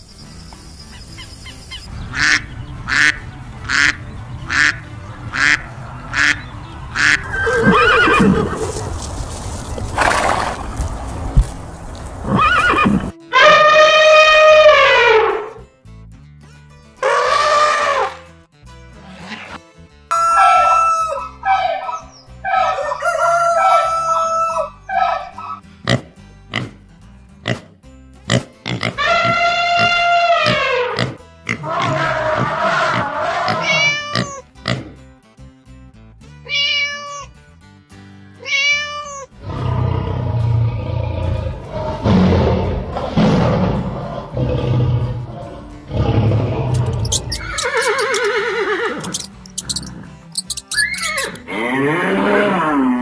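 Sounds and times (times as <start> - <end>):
faint background music: 0.0 - 10.6, 11.2 - 53.0
horse whinnying: 7.3 - 8.9, 12.2 - 15.5, 29.0 - 34.4, 46.7 - 53.0
rooster crowing: 20.1 - 21.8, 22.5 - 25.3
short rasping calls: 46.7 - 51.4.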